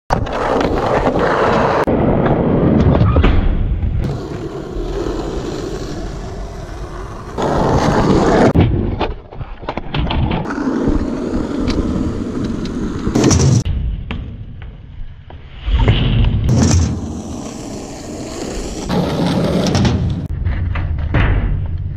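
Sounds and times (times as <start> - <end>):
skateboard wheels rolling: 0.1 - 3.4, 4.0 - 13.7, 16.5 - 20.6
skateboard hitting ramp: 0.1 - 14.8, 15.8 - 21.8.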